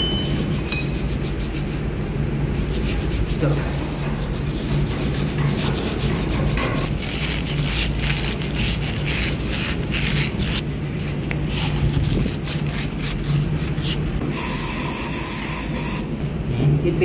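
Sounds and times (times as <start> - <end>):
pad rubbing metal shaft: 0.0 - 1.8, 2.5 - 14.5
steady low hum: 0.0 - 17.0.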